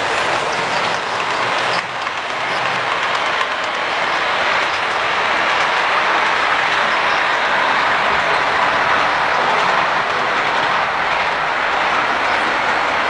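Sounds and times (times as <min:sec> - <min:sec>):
model train wheels rattling: 0:00.0 - 0:11.0.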